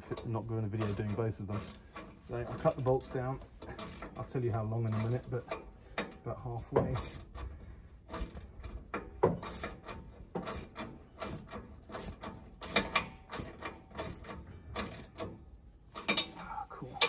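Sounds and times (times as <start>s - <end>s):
ratchet wrench clicking: 0.8s - 4.2s, 4.9s - 6.2s, 7.0s - 15.4s.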